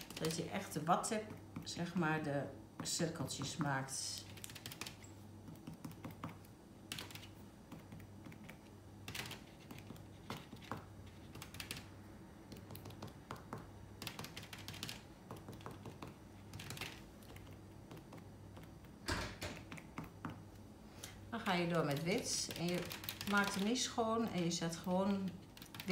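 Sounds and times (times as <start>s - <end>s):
low steady hum: 0.0s - 25.9s
cotton swab tapping on paper: 12.5s - 14.3s, 15.2s - 16.2s.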